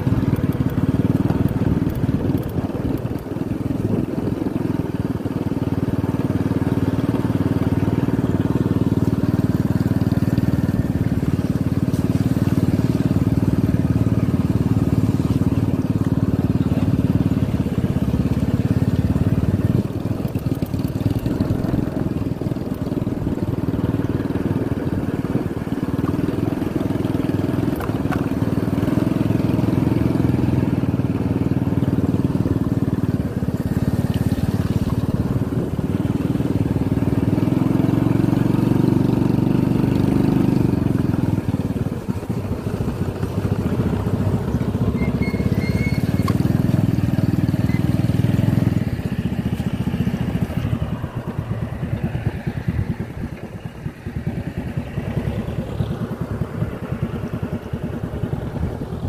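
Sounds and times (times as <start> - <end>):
motorcycle engine at low speed: 0.0 - 59.0.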